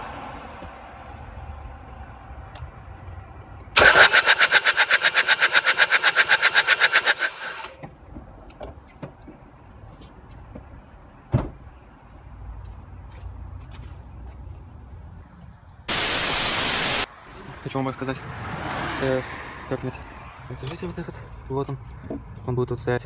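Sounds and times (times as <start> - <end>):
starter cranking diesel engine: 3.8 - 7.8.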